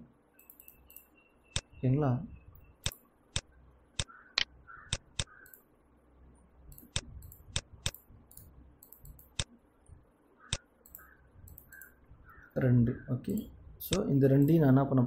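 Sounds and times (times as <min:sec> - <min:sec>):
computer mouse clicking: 0:00.4 - 0:01.7, 0:02.8 - 0:05.7, 0:06.7 - 0:09.5, 0:10.4 - 0:12.5, 0:13.3 - 0:14.6.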